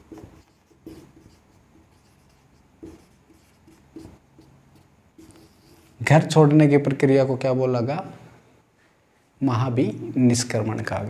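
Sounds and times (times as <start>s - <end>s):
marker pen writing on whiteboard: 0.0s - 6.1s.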